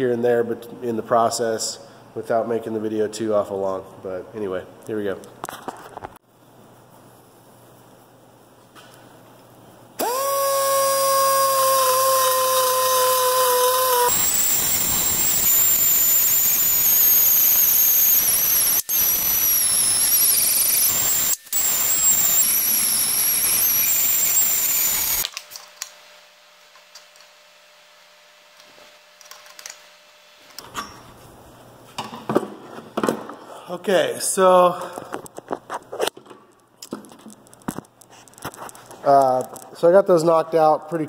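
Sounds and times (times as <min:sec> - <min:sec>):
air die grinder whining and grinding: 0:10.0 - 0:25.3.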